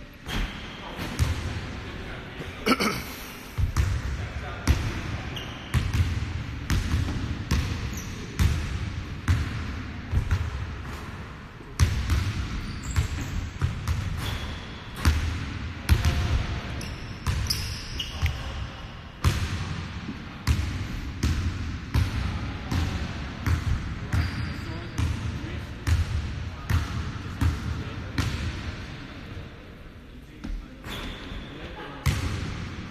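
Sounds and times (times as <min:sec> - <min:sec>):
shoe squeaks: 0:05.3 - 0:05.7, 0:07.9 - 0:08.3, 0:12.6 - 0:13.6, 0:14.2 - 0:14.8, 0:16.8 - 0:18.6, 0:24.2 - 0:24.7, 0:30.8 - 0:31.6.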